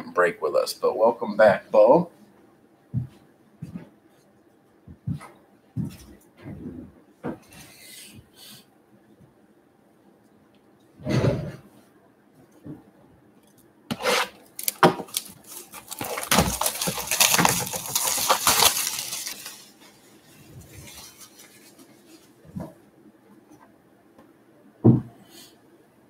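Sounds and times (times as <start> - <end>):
plastic wrapping crinkling and tearing: 13.9 - 22.4
knock: 24.8 - 25.2.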